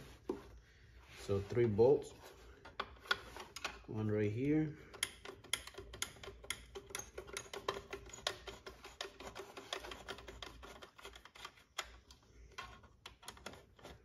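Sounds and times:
hand tool clicking: 4.8 - 12.2.

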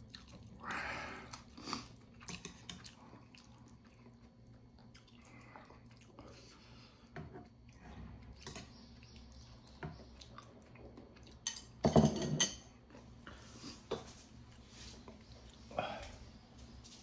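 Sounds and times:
utensils clinking on plate and pot: 11.4 - 12.7
plate clattering on wooden table: 11.8 - 12.6.

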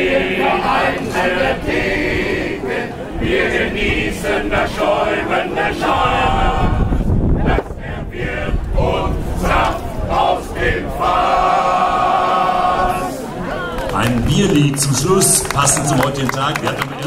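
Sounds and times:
men's choir singing in harmony: 0.0 - 13.3.

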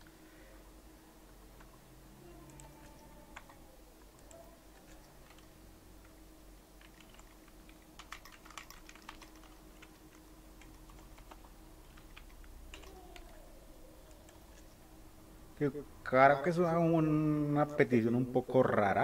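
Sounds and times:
faint steady hum: 0.0 - 19.0
typing on computer keyboard: 4.2 - 6.2, 6.8 - 13.4.

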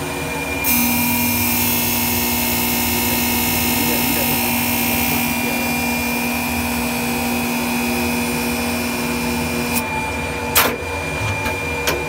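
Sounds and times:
metal-working machine humming: 0.0 - 12.0
machine hiss: 0.6 - 6.0.

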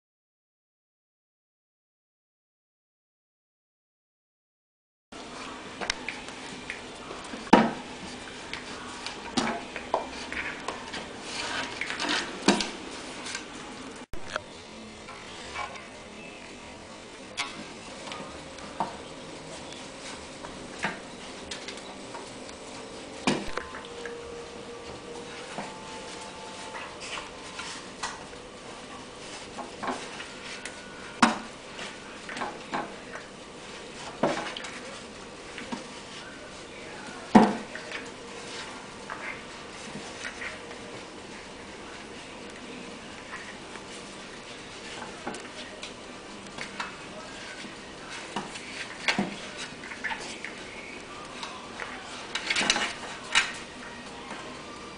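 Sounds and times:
animals play-fighting on wooden floor: 17.4 - 54.9.

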